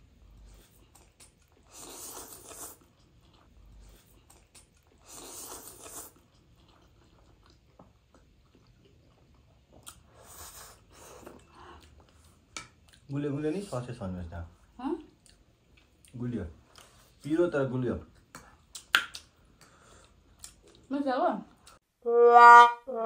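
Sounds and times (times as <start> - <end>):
soft chewing: 0.0 - 17.4, 18.0 - 20.9, 21.5 - 21.8
noodles being slurped: 0.6 - 7.6.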